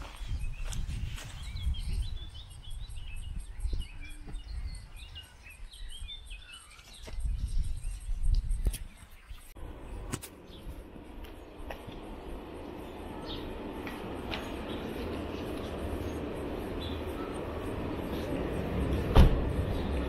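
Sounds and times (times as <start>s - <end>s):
low wind rumbles on microphone: 0.0s - 20.0s
songbirds chirping: 0.0s - 20.0s
outdoor background hiss: 9.5s - 20.0s.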